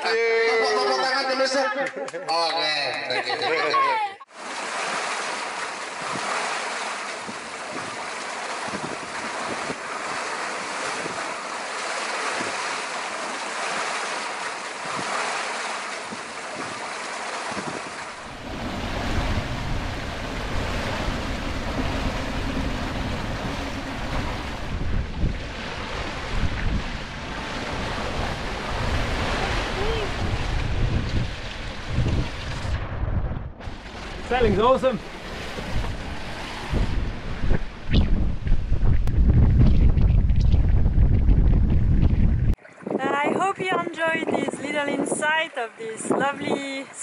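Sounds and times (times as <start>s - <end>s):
water rushing past hull: 4.2s - 47.0s
wind blowing on microphone: 8.6s - 10.2s, 10.9s - 11.3s, 17.5s - 47.0s.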